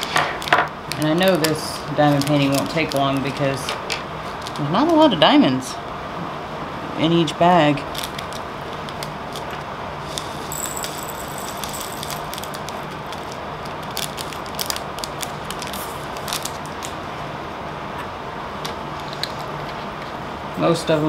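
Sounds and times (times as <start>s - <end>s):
plastic bag crinkling: 0.0s - 3.6s, 4.3s - 5.0s, 7.8s - 17.0s
room hum: 0.0s - 21.0s
beads rattling into plastic pot: 10.1s - 16.8s.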